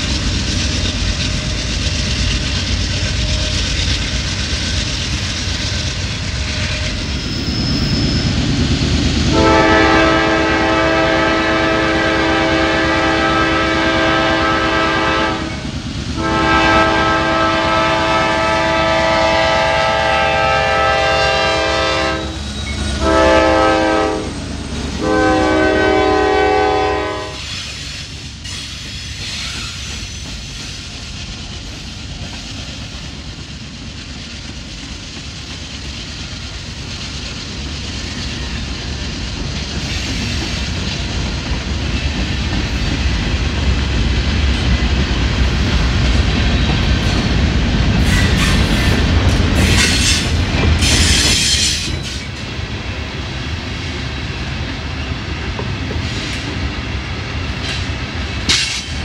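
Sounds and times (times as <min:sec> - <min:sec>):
locomotive rumble: 0:00.0 - 0:59.0
train wheels rolling: 0:00.0 - 0:59.0
locomotive air horn blasts: 0:09.3 - 0:15.6, 0:16.2 - 0:24.4, 0:25.0 - 0:27.6.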